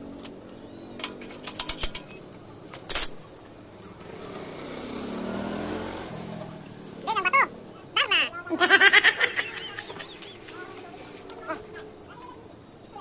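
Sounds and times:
vehicle engine: 0.0 - 13.0
metal hand tools clinking: 1.0 - 3.5.

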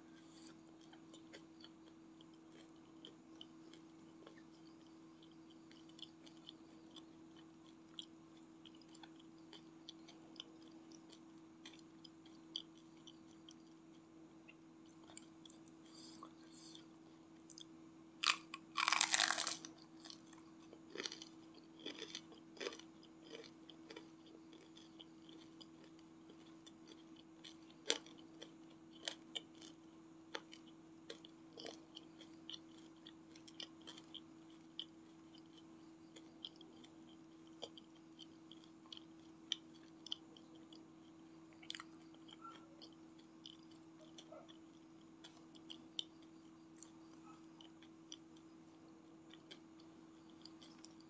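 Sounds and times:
chewing with small crunches: 0.0 - 51.0
faint low hum: 0.0 - 51.0
crunchy bite into fried food: 18.2 - 20.3.

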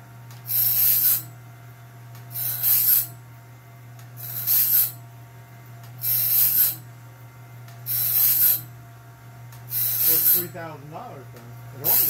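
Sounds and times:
electric motor hum: 0.0 - 3.3, 3.9 - 12.0
grinding wheel hissing on blade: 0.5 - 1.3, 2.3 - 3.2, 4.2 - 5.0, 6.0 - 6.9, 7.9 - 8.7, 9.7 - 10.8, 11.7 - 12.0.

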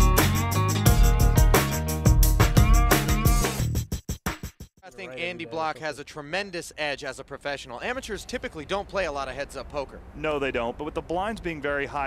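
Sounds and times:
upbeat music with heavy bass: 0.0 - 4.7.

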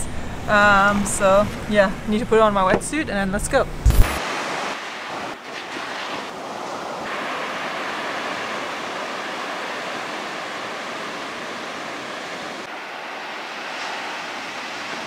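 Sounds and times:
waves breaking: 3.8 - 15.0.

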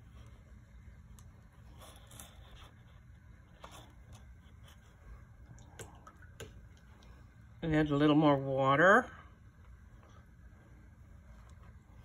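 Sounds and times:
low room hum: 0.0 - 12.0
brush and paper scratching: 1.3 - 5.2.

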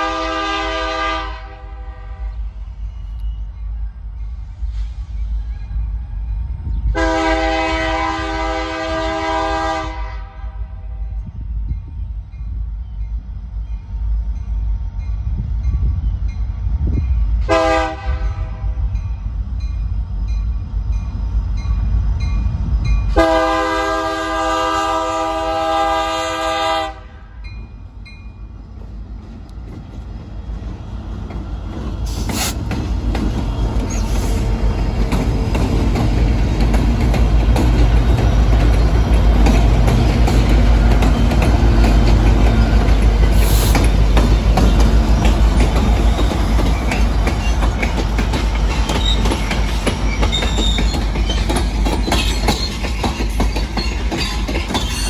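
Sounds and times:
locomotive air horn blasts: 0.0 - 2.4, 7.0 - 11.0, 17.4 - 18.8, 23.1 - 27.4
diesel engines rumbling: 27.8 - 55.0.

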